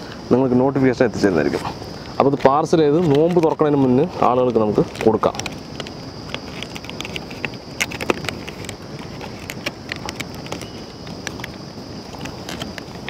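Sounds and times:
foil trays clicking and tapping: 0:02.2 - 0:11.5.

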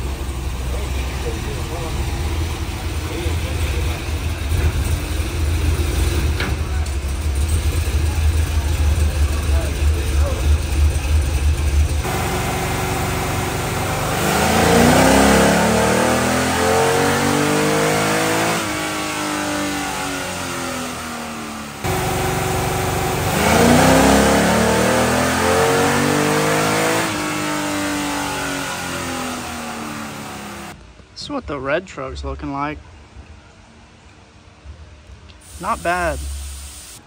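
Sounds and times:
engine revving hard: 0:07.6 - 0:30.8, 0:35.5 - 0:36.6.

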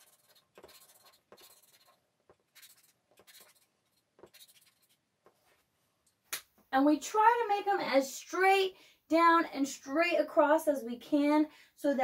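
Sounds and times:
marker drawing on paper: 0:00.0 - 0:05.5.

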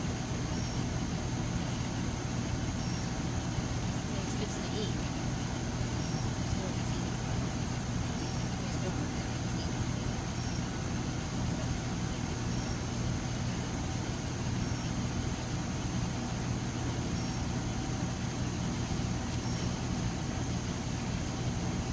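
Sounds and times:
low outdoor hum: 0:00.0 - 0:21.9.

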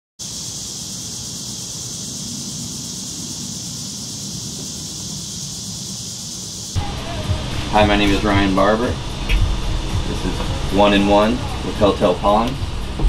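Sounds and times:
high hiss: 0:00.2 - 0:13.0
low rumble: 0:06.8 - 0:13.0.

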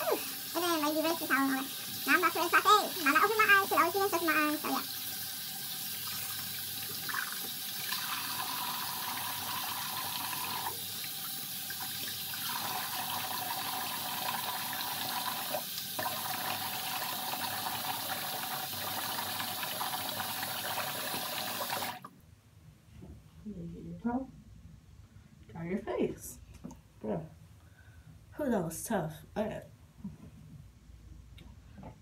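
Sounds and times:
tap water running into sink: 0:00.0 - 0:22.1.

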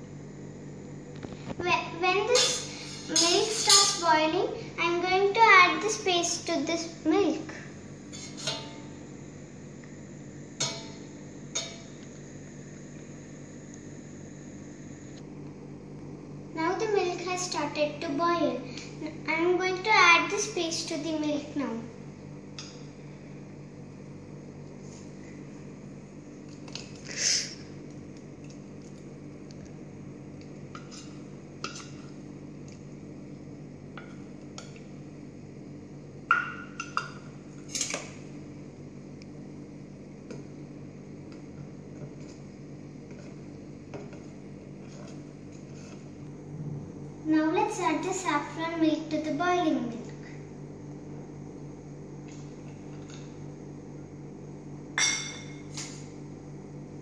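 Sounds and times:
steady low hum: 0:00.0 - 0:57.0
spoon scraping metal bowl: 0:02.4 - 0:04.0
low hum: 0:38.2 - 0:47.4.

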